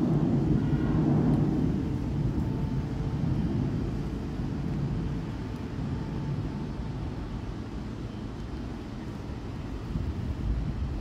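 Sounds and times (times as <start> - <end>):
ship engine droning: 0.0 - 11.0.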